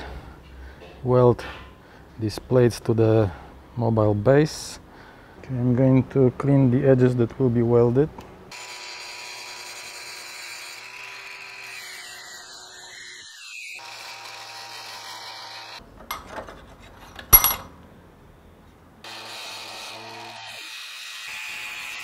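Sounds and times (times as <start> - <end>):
angle grinder grinding steel: 8.5 - 16.2, 19.1 - 22.0
metal knocks: 17.2 - 17.8.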